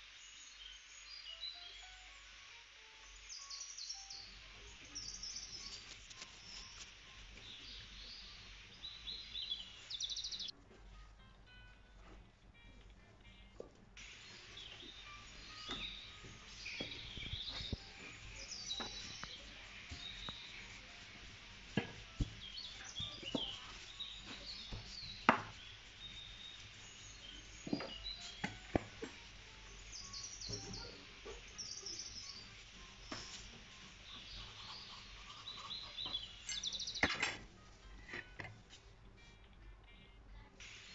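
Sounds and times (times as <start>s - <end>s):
birds chirping: 3.0s - 10.6s, 14.0s - 37.4s
rolling pin knocking on wooden board: 24.6s - 25.6s.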